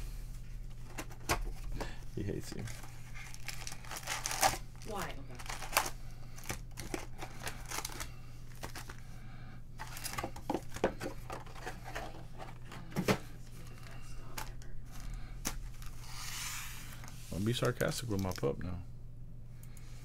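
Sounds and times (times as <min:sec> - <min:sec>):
low steady hum: 0:00.0 - 0:20.0
wrappers crinkling and tearing: 0:02.5 - 0:09.0, 0:17.4 - 0:18.6
cards clicking and rustling: 0:05.4 - 0:09.0, 0:09.8 - 0:12.7, 0:17.0 - 0:18.5.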